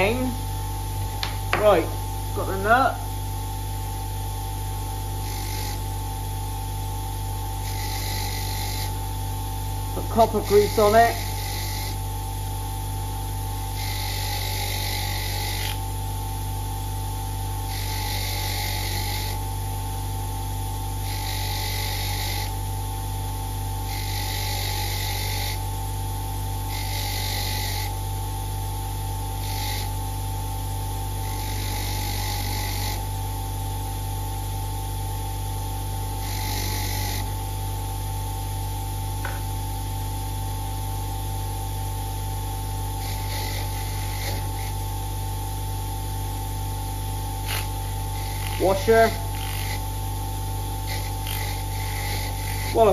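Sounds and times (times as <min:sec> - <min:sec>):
bench grinder motor running: 0:00.0 - 0:52.9.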